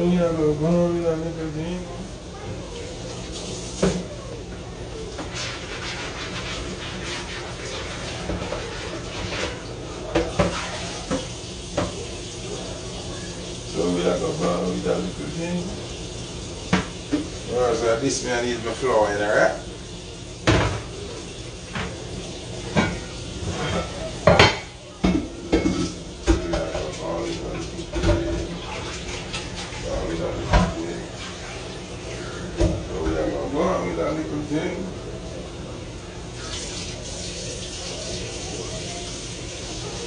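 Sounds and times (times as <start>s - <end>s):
water running and splashing: 5.2s - 20.2s, 25.9s - 32.6s, 36.4s - 40.0s
dishes and utensils clattering: 22.7s - 30.8s.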